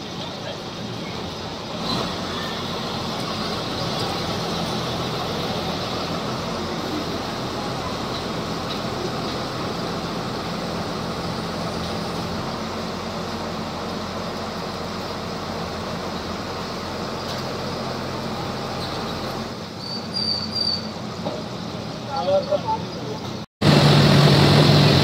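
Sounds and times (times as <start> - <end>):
drilling rig engine running: 0.0 - 22.6, 23.3 - 25.0
short high squeaks: 18.7 - 21.0.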